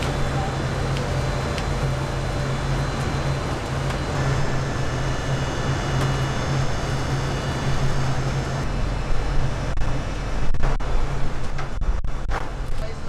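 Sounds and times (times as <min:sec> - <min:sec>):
rushing air noise: 0:00.0 - 0:12.9
fan low hum: 0:00.0 - 0:13.0.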